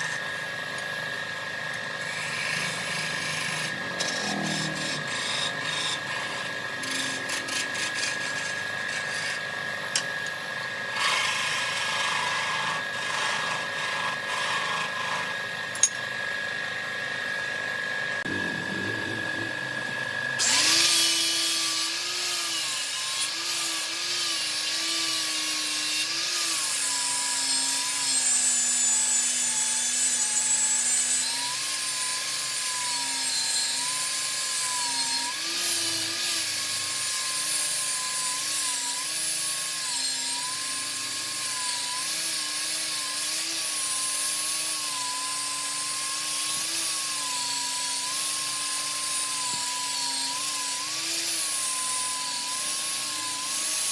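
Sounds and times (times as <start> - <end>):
wood lathe motor running: 0.0 - 53.9
turning tool scraping wood: 1.7 - 10.3, 10.9 - 15.6.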